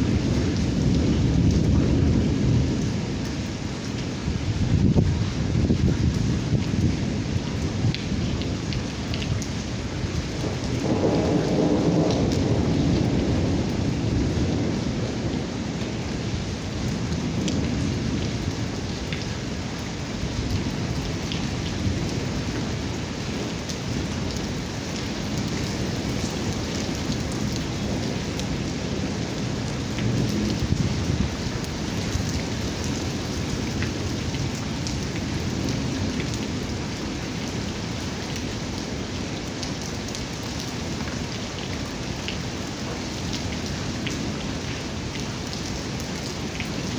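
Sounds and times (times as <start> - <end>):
low rolling thunder: 0.0 - 3.6, 4.4 - 19.3, 20.3 - 36.9
heavy rain on wet ground: 0.0 - 46.9.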